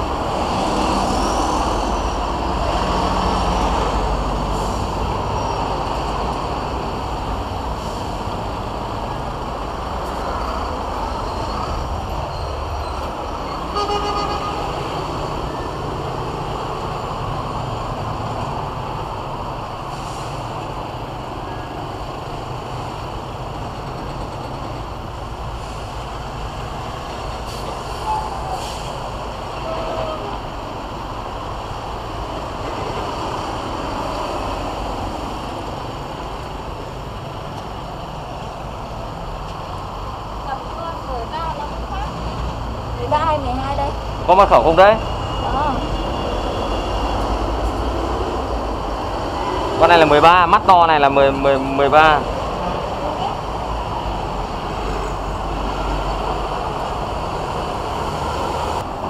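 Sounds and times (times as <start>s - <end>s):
heavy trucks passing: 0.0s - 59.0s
vehicle horn toot: 13.7s - 14.8s.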